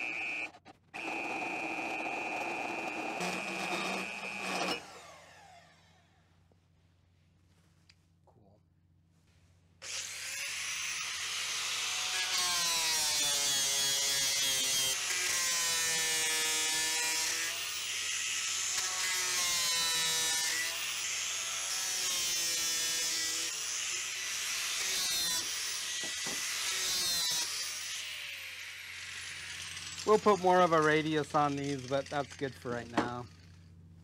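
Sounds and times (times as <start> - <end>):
angle grinder grinding metal: 0.0 - 5.5, 9.8 - 33.7.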